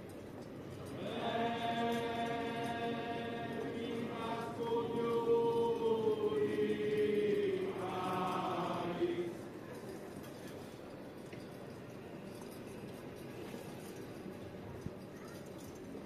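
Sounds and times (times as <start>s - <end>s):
choir chanting in unison: 1.0s - 9.4s.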